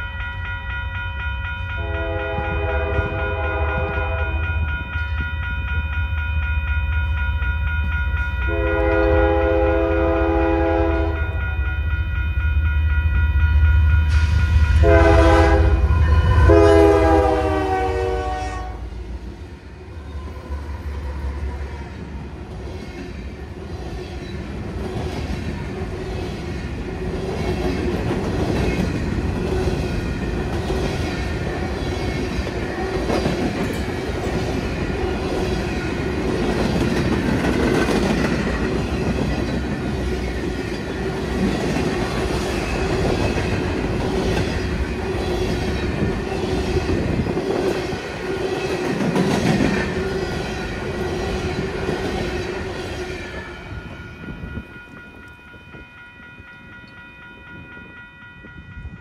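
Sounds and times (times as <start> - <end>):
train rumble: 0.0 - 59.0
train wheels clacking: 24.4 - 53.6.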